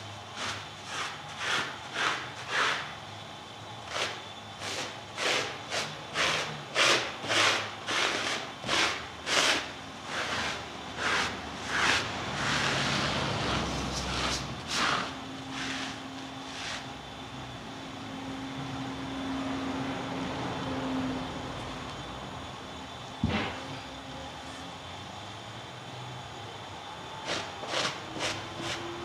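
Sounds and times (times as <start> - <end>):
plastic scraper scraping cloth: 0.4 - 2.9, 3.9 - 16.8.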